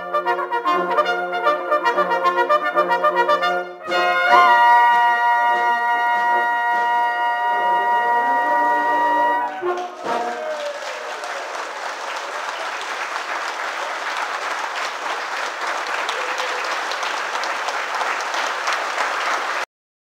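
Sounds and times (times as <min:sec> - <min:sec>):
brass cornets holding a chord: 0:00.0 - 0:10.0
audience applause: 0:08.1 - 0:19.7.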